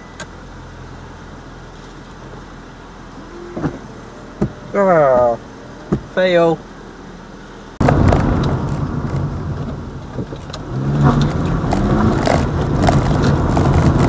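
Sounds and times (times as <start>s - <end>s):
humming engine note: 0.0s - 14.0s
road and tyre rumble: 0.0s - 14.0s
small rattles in car cabin: 3.4s - 6.6s, 7.9s - 14.0s.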